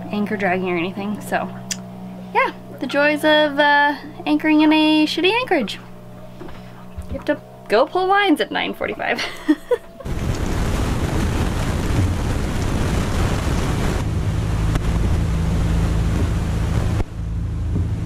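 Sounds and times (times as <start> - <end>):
low steady hum: 0.0 - 18.0
wind buffeting microphone: 9.9 - 18.0.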